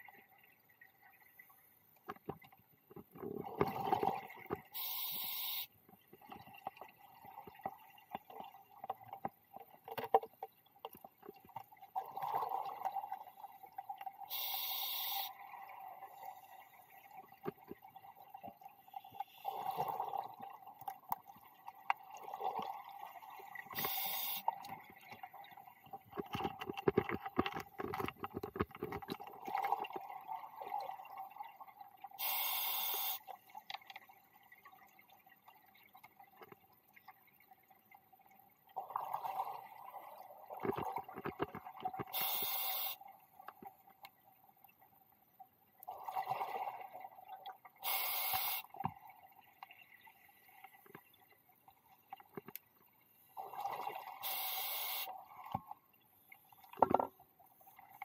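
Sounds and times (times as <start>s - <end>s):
exhaled bubbles gurgling: 3.2s - 4.8s, 11.4s - 14.5s, 15.3s - 32.1s, 38.7s - 42.9s, 45.9s - 50.6s, 53.4s - 55.8s
regulator inhale hiss: 4.8s - 5.7s, 14.3s - 15.4s, 23.8s - 24.5s, 32.2s - 33.2s, 42.2s - 43.0s, 47.8s - 48.7s, 54.2s - 55.2s.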